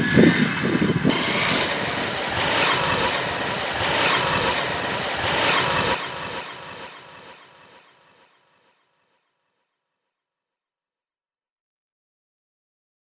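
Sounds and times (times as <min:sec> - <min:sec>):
motorcycle engine running: 0:00.0 - 0:08.8.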